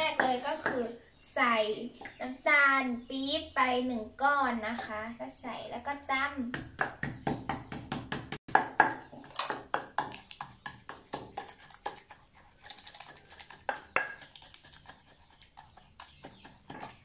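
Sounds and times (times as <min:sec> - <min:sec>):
pestle pounding in a mortar: 0:06.5 - 0:17.0.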